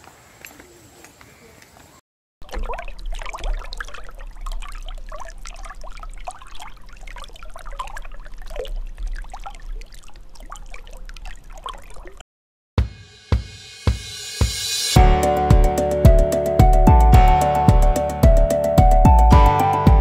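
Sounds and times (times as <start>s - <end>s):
water trickling and gurgling: 2.4s - 12.2s.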